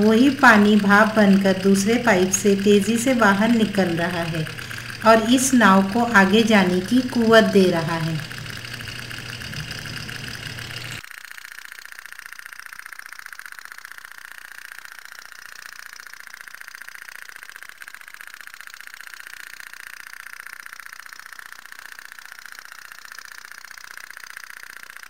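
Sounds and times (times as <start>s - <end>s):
toy steam boat putt-putt: 0.0s - 25.0s.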